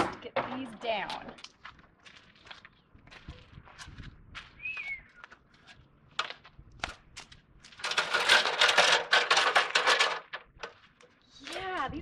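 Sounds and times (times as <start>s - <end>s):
plastic light bulbs rattling: 7.8s - 10.7s.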